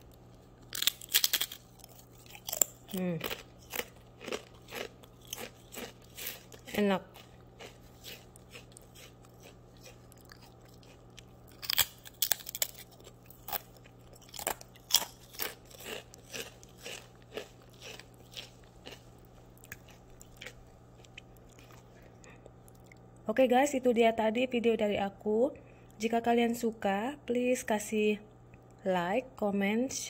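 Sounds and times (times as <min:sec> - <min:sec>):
cracker crunching while chewed: 0:00.0 - 0:23.2
faint steady hum: 0:00.0 - 0:30.0.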